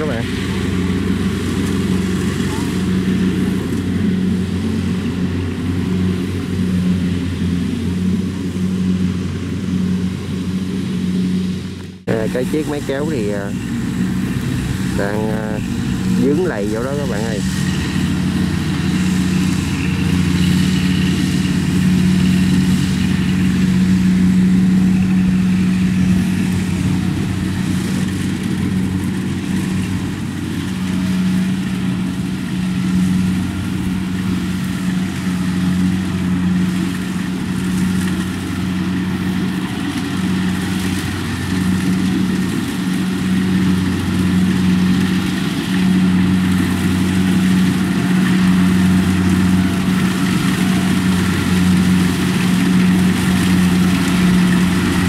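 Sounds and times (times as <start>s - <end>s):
diesel engines droning: 0.0s - 55.0s.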